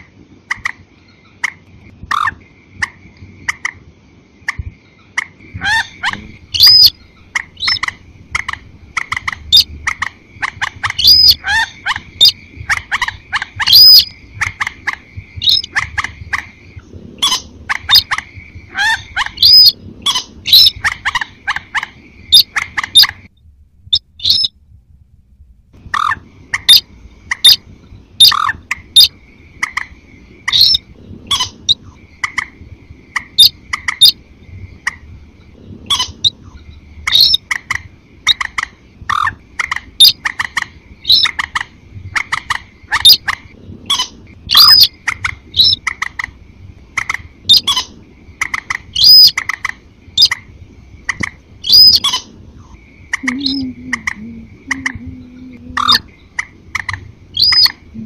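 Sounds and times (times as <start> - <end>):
short sharp bird calls: 4.5 - 16.5, 47.0 - 50.4, 51.1 - 55.0.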